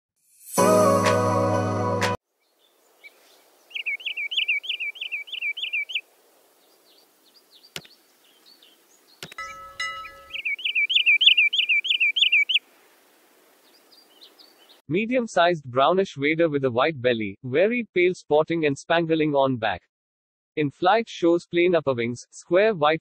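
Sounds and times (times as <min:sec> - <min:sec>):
bird whistled calls: 0:03.0 - 0:06.0, 0:09.2 - 0:12.6
sharp click: 0:09.2 - 0:09.5.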